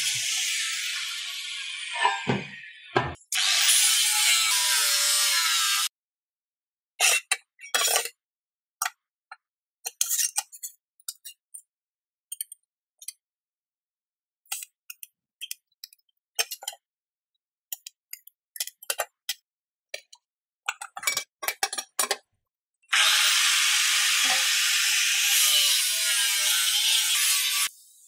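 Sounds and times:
power tool working on metal: 0.0s - 5.9s, 22.9s - 28.0s.

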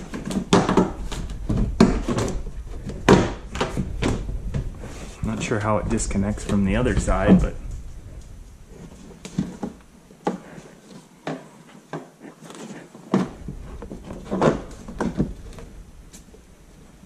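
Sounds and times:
plastic wheel liner knocks and clicks: 0.0s - 4.7s.

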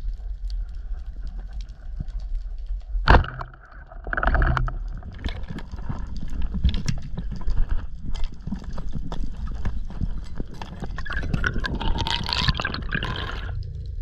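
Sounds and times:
low rumble of water: 0.0s - 14.0s
speargun firing crack underwater: 3.0s - 4.8s.

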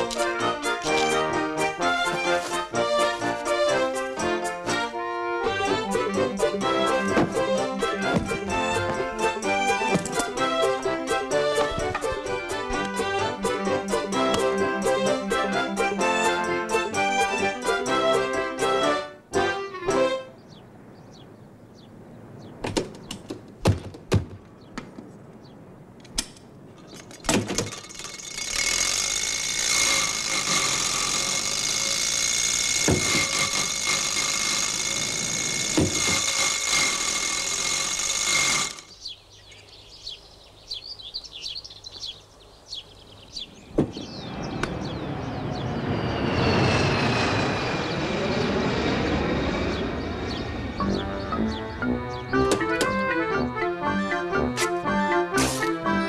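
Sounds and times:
jet aircraft flying over: 43.9s - 56.0s
car engine with high whine: 44.1s - 50.5s.

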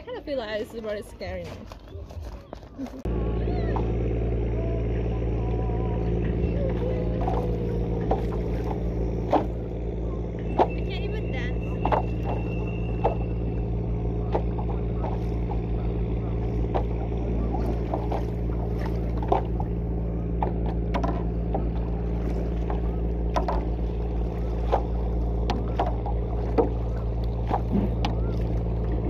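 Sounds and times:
steady low hum: 2.8s - 29.0s
paddle splashes against board: 7.2s - 9.6s, 11.7s - 13.6s, 14.2s - 29.0s.

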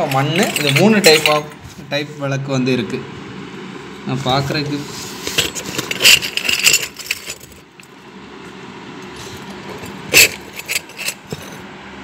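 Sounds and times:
metal lamps clinking: 0.0s - 1.6s, 5.3s - 7.9s, 9.5s - 11.6s.

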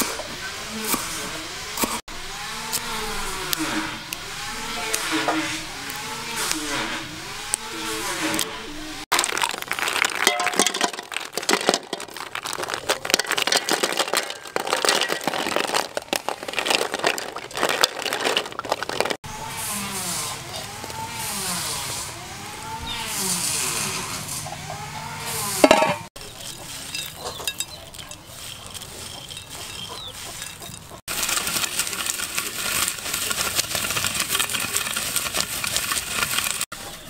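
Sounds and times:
snail shells clattering in pot: 9.1s - 19.2s, 25.5s - 36.7s.

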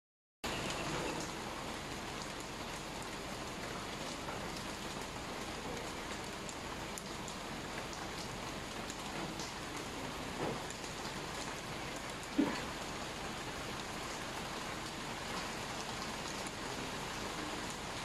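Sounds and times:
rain on wet tiles: 0.4s - 18.0s
scattered water drips: 0.5s - 18.0s.

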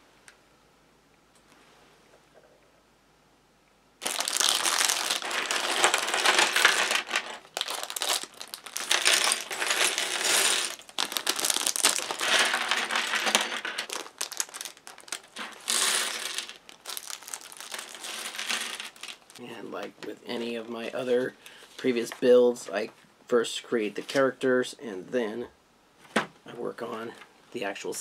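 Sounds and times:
plastic bags crinkling: 4.0s - 19.4s
plastic bricks clattering onto table: 4.0s - 19.4s.

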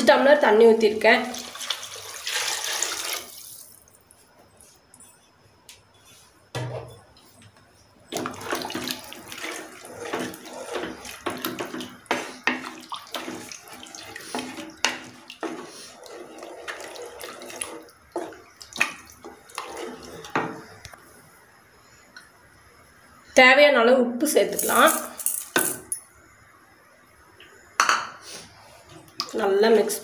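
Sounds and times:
liquid sloshing and swirling: 8.1s - 20.9s
spoon knocking against pot: 27.8s - 28.2s.

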